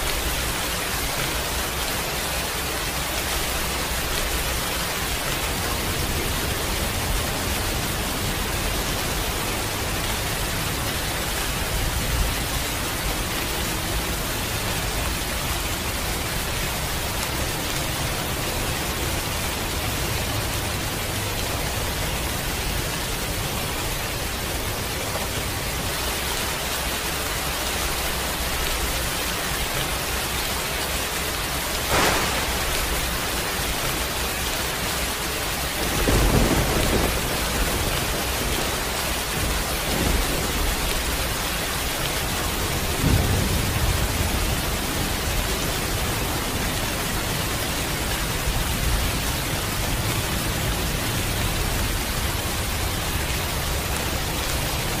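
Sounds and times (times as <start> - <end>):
heavy rain falling: 0.0 - 55.0
sharp thunder crack: 31.9 - 34.1, 35.8 - 38.7, 43.0 - 44.6
low thunder rumble: 31.9 - 34.3, 35.7 - 46.7.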